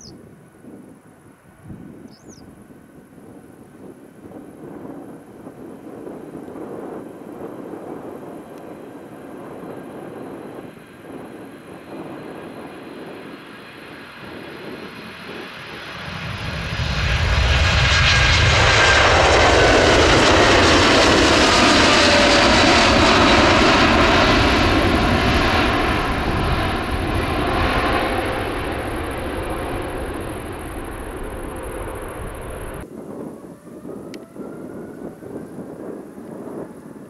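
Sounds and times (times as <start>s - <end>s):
jet engines roaring: 4.7s - 35.9s.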